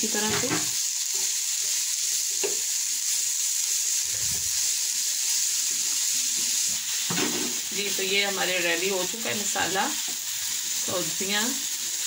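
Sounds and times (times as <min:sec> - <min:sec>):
food sizzling in a pan: 0:00.0 - 0:12.0.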